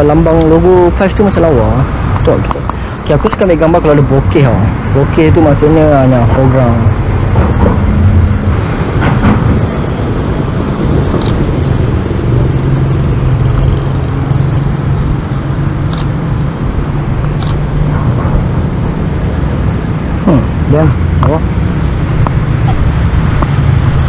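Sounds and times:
road traffic hum: 0.0 - 24.0.

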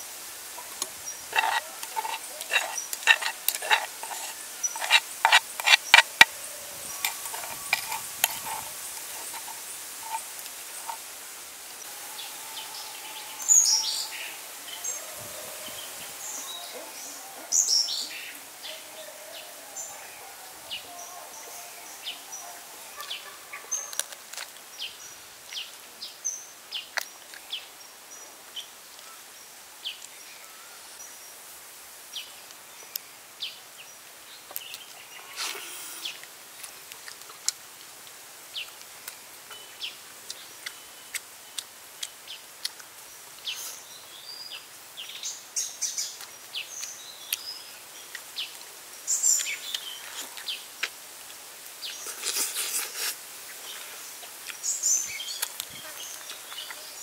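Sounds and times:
birds chirping: 0.5 - 11.0, 12.1 - 23.9
person chewing with smacking: 0.6 - 6.3, 6.9 - 11.0, 36.2 - 38.2, 40.3 - 43.0, 52.0 - 54.6
tearing food: 0.7 - 6.3, 52.0 - 54.6.

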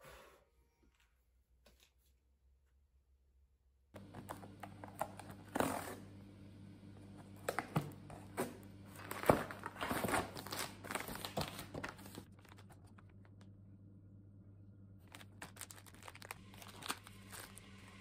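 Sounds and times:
faint steady hum: 4.0 - 18.0
cardboard tearing: 8.4 - 12.8, 15.1 - 17.6
plastic crinkling: 9.0 - 13.4, 15.0 - 18.0.

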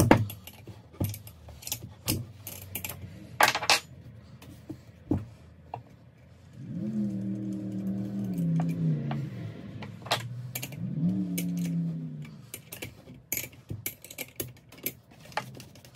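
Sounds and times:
metal parts clinking on workbench: 0.0 - 4.0, 10.0 - 11.8, 12.4 - 15.9.

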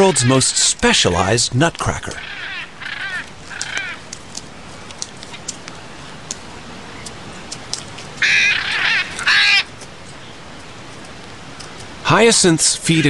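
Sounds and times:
macaws squawking: 0.0 - 4.5, 8.1 - 10.3
faint clicks: 3.2 - 8.2.

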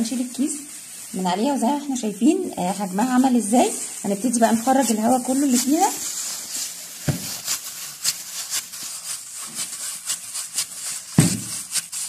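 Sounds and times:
dough squishing: 0.0 - 12.0
plastic gloves crackling: 0.0 - 12.0
soft thud of dough: 7.0 - 7.4, 11.2 - 11.6.

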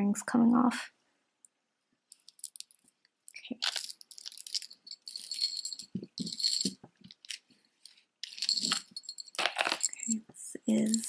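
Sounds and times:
jewelry clinking and jangling: 2.1 - 11.0.

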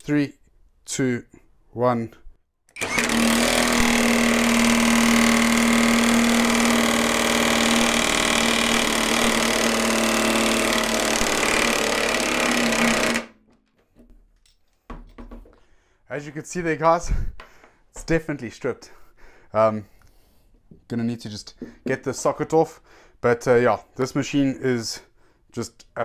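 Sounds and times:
impact wrench hammering: 2.8 - 13.4.

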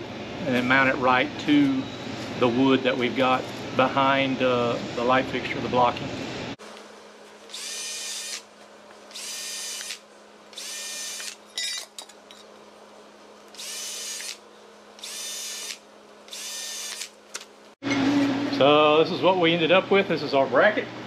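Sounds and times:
cordless drill drilling aluminum: 7.5 - 8.5, 9.1 - 11.9, 13.5 - 14.4, 15.0 - 17.2.

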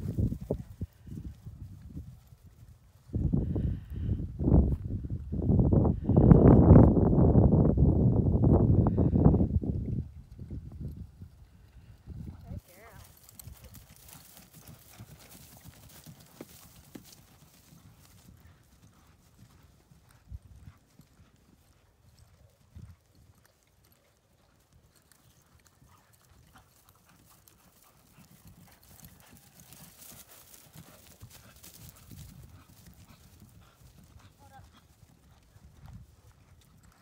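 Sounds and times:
horse hoofbeats on turf: 12.4 - 37.0.

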